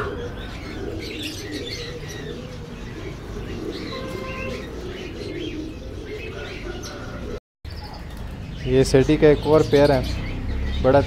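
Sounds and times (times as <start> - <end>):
pigeons cooing: 0.0 - 7.4
finches chirping: 0.3 - 6.3
short whistled bird notes: 3.9 - 4.8.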